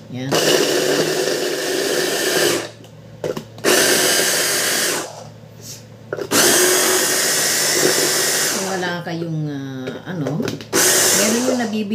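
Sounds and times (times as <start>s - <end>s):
food chopper whirring: 0.3s - 5.4s, 6.1s - 9.0s, 10.4s - 11.9s.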